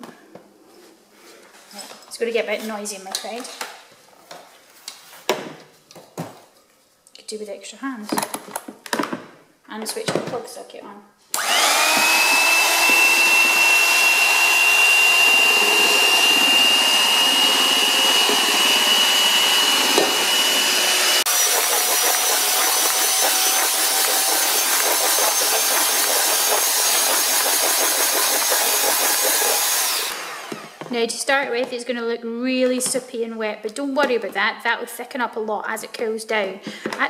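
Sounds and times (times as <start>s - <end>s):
electric hand mixer whining: 11.4s - 30.9s.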